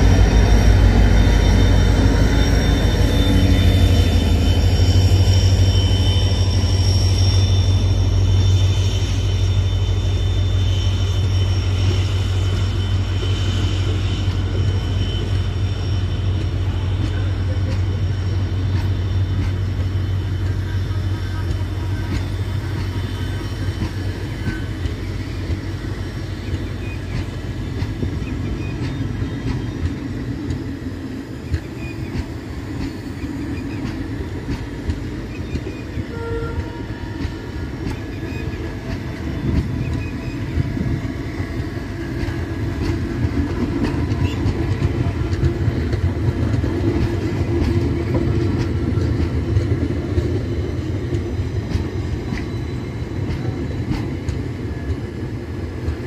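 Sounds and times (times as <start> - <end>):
train coaches rumbling past: 0.0 - 56.0
wheels clicking over rail joints: 41.7 - 52.6.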